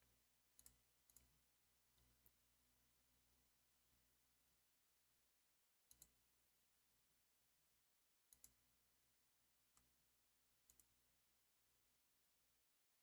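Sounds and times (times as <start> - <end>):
computer mouse clicks: 0.6 - 1.4, 5.9 - 6.2, 8.3 - 8.6, 10.7 - 11.0.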